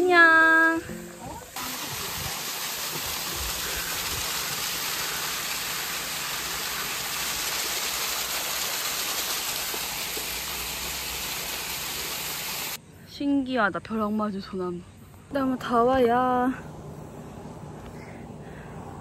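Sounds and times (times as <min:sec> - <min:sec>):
small waterfall splashing: 0:01.5 - 0:12.8.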